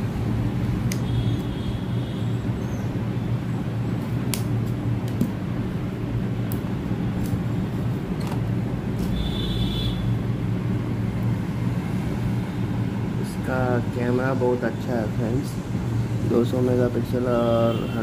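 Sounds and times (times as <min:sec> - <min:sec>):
low mechanical hum: 0:00.0 - 0:18.0
scissors snipping tape: 0:00.6 - 0:01.1, 0:04.2 - 0:05.4, 0:06.5 - 0:07.4, 0:08.2 - 0:09.2.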